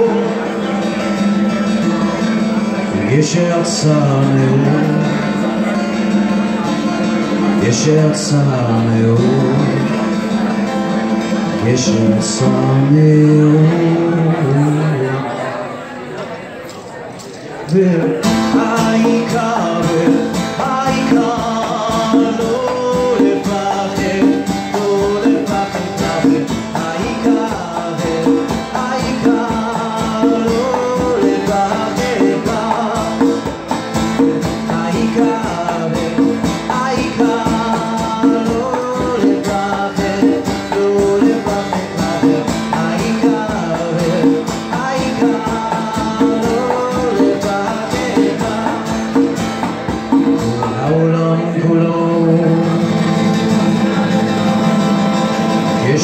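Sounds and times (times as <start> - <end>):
man singing: 0.0 - 15.6, 17.6 - 56.0
acoustic guitar: 0.0 - 56.0
conga drums: 18.0 - 56.0.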